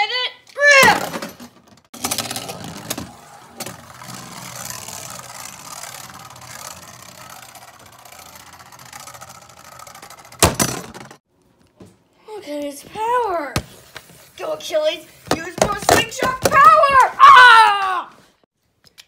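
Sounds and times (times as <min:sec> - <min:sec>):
spinning top whirring and scraping: 0:02.0 - 0:11.2.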